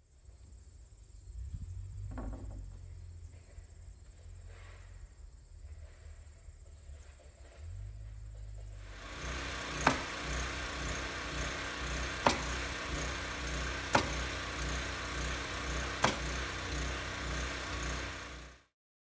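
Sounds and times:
small engine pulsing hum: 0:00.0 - 0:18.8
pneumatic nailer shots: 0:08.8 - 0:18.7.

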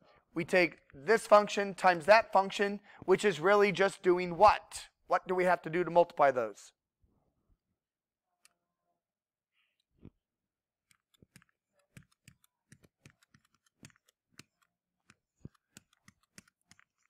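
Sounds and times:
stylus tapping on tablet screen: 0:10.9 - 0:17.0.

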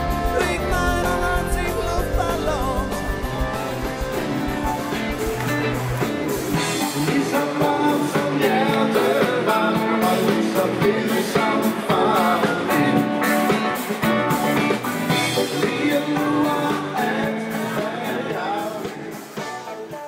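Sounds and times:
man singing into microphone: 0:00.0 - 0:04.3, 0:06.8 - 0:13.2, 0:15.3 - 0:20.0
live rock band music: 0:00.0 - 0:20.0.

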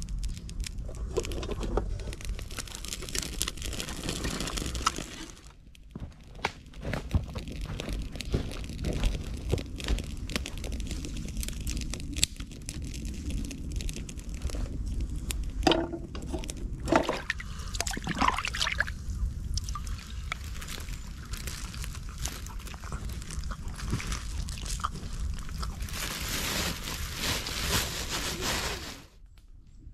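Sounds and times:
wood fire crackling in stove: 0:00.0 - 0:29.5
footsteps on dry twigs: 0:02.4 - 0:11.4.

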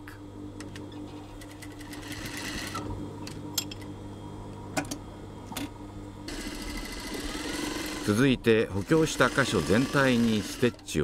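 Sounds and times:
industrial sewing machine humming: 0:01.4 - 0:03.4, 0:06.3 - 0:11.0.

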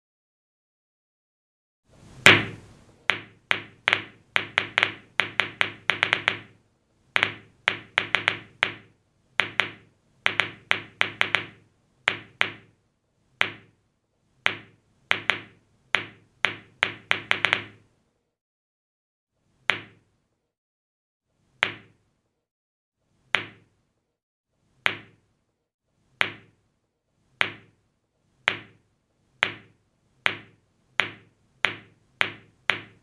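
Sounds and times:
balls bouncing on floor: 0:02.3 - 0:06.5, 0:07.2 - 0:12.7, 0:14.5 - 0:17.8, 0:30.3 - 0:33.0.

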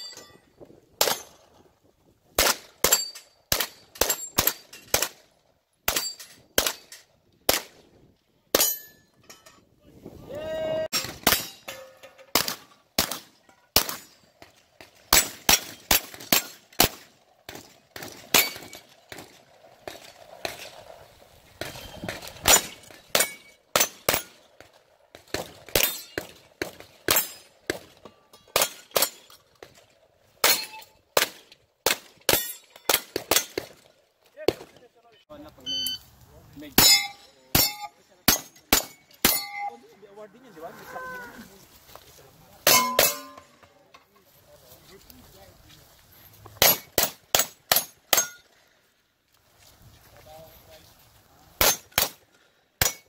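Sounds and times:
steel targets clanging: 0:00.0 - 0:01.5, 0:02.4 - 0:05.2, 0:05.8 - 0:07.2, 0:08.5 - 0:09.7, 0:10.9 - 0:20.7, 0:21.6 - 0:24.5, 0:25.4 - 0:29.8, 0:30.4 - 0:33.8, 0:36.6 - 0:39.9, 0:42.6 - 0:44.1, 0:46.6 - 0:48.6, 0:51.6 - 0:53.0.

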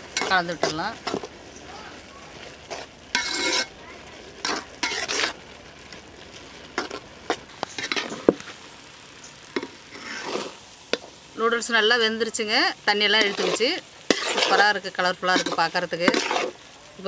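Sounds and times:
metal spatula scraping pot: 0:00.0 - 0:01.4, 0:02.5 - 0:03.8, 0:04.4 - 0:05.4, 0:06.7 - 0:08.5, 0:09.6 - 0:10.6, 0:12.9 - 0:16.7
soft sizzle: 0:00.0 - 0:17.0.

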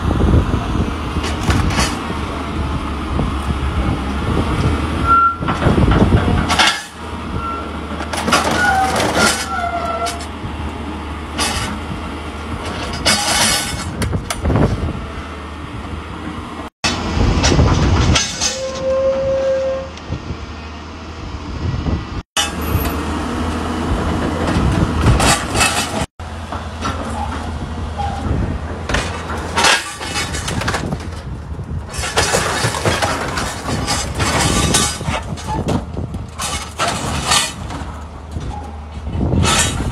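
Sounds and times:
diesel engine running: 0:00.0 - 0:18.4, 0:20.0 - 0:39.9
short metal squeals: 0:05.0 - 0:05.5, 0:06.5 - 0:10.3, 0:18.2 - 0:20.0, 0:27.1 - 0:28.3, 0:32.0 - 0:35.7, 0:38.4 - 0:39.9
metal crashing and breaking: 0:28.9 - 0:38.5.

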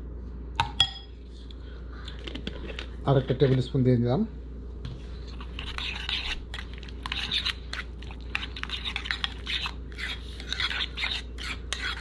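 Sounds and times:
spoon stirring mayonnaise in bowl: 0:04.9 - 0:12.0.

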